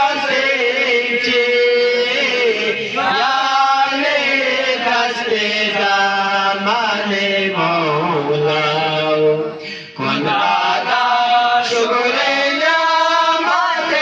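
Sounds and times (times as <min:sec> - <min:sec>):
man singing into microphone: 0:00.0 - 0:14.0.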